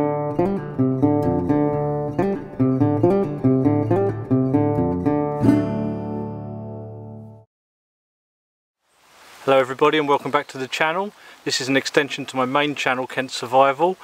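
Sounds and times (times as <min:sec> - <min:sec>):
acoustic guitar strumming: 0:00.0 - 0:07.4.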